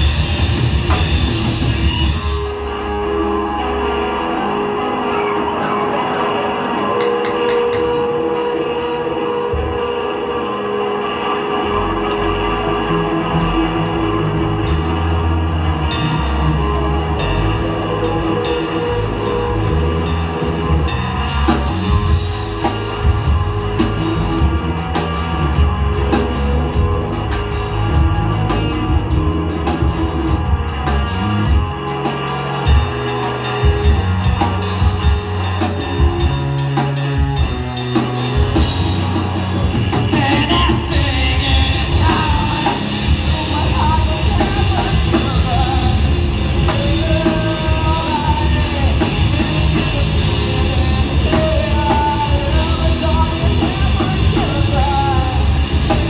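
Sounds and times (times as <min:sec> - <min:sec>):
live rock band playing: 0:00.0 - 0:56.0.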